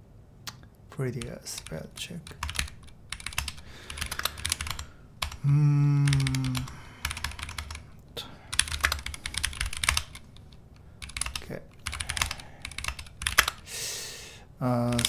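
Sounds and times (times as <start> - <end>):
keyboard typing: 1.2 - 13.7
man humming: 5.4 - 7.0.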